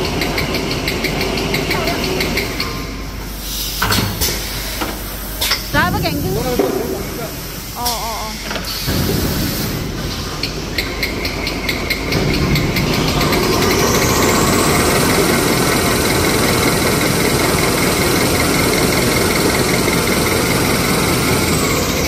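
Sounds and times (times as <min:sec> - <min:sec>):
high machine whine: 0:05.7 - 0:09.0, 0:11.7 - 0:22.0
machine running: 0:05.7 - 0:22.0.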